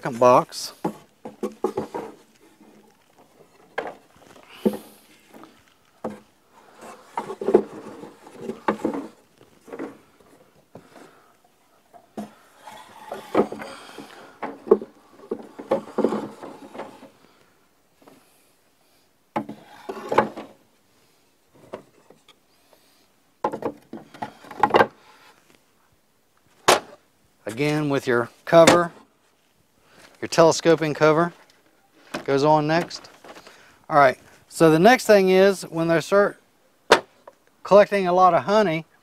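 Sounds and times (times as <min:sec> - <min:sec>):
wooden frames knocking and scraping: 0:00.2 - 0:11.3, 0:11.9 - 0:17.3, 0:19.3 - 0:20.6, 0:21.5 - 0:22.3, 0:23.4 - 0:25.0.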